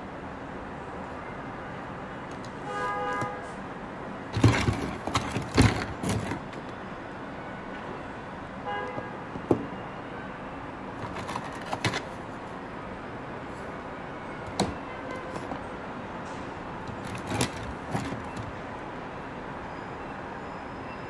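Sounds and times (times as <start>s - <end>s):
plastic toys clicking and clacking: 4.3s - 6.6s, 11.0s - 12.2s, 16.8s - 18.5s.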